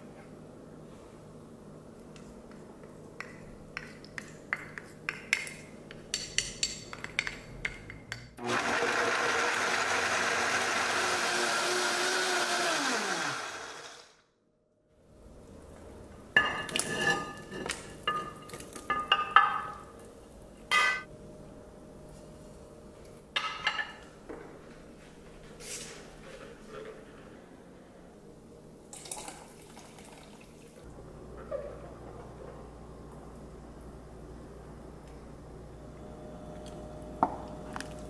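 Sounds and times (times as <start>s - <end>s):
blender running: 8.4s - 14.2s.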